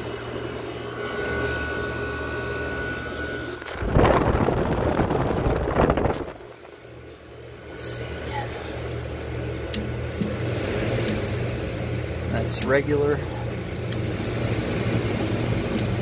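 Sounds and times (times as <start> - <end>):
air conditioner humming: 0.0 - 16.0
rush of air: 3.7 - 6.8.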